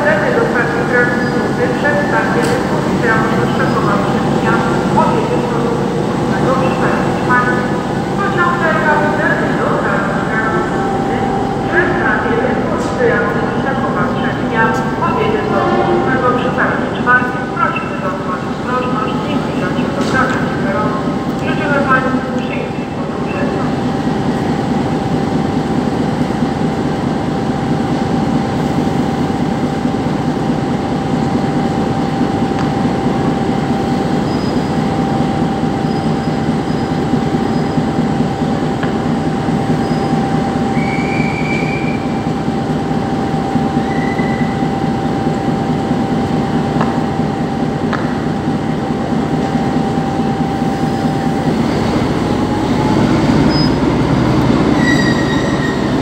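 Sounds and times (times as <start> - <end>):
engine whine: 0.0 - 26.6
diesel locomotive engine rumbling: 0.0 - 56.0.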